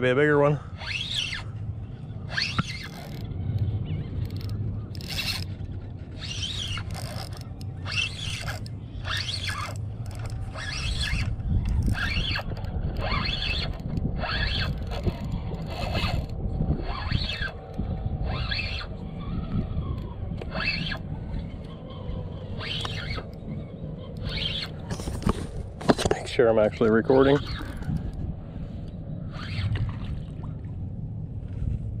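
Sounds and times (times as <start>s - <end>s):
fishing reel gear whirring: 0.0s - 30.5s
wind rumble on microphone: 0.0s - 32.0s.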